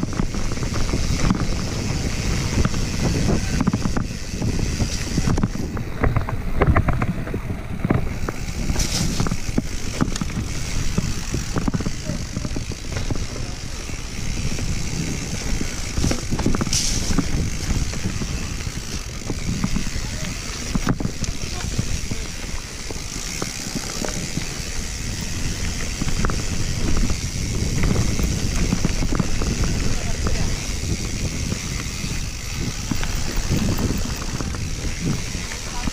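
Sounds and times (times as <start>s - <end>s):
bike rattling over rocks: 0.0s - 35.9s
wind buffeting microphone: 0.0s - 35.9s.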